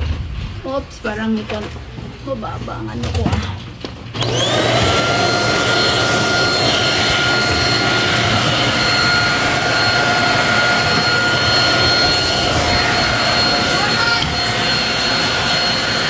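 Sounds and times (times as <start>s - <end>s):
handheld vacuum cleaner whine: 4.1s - 16.0s.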